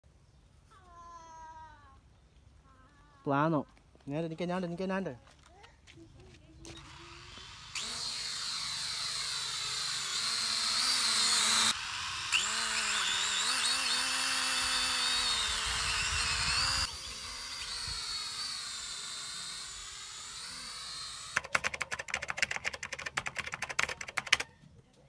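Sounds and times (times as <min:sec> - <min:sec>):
toy drone propellers whining: 0:06.7 - 0:21.5.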